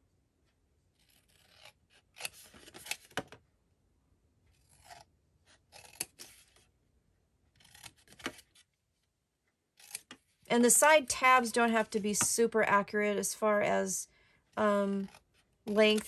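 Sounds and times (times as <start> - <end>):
scissors snipping paper: 5.7 - 6.6, 7.6 - 8.5, 14.9 - 16.0.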